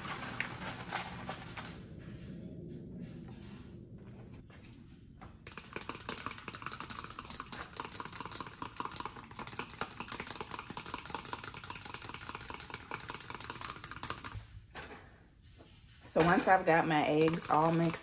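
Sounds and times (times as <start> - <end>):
fork whisking eggs in plastic: 5.5 - 14.4, 17.1 - 18.0.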